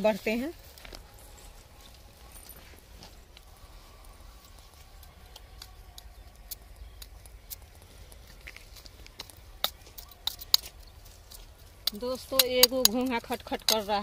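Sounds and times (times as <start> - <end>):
dry grass rustling: 0.0 - 14.0.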